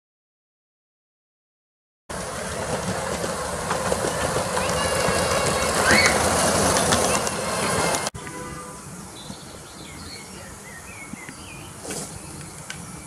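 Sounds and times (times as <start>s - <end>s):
miniature steam locomotive running: 2.1s - 8.1s
wheels clicking over rails: 2.1s - 8.4s.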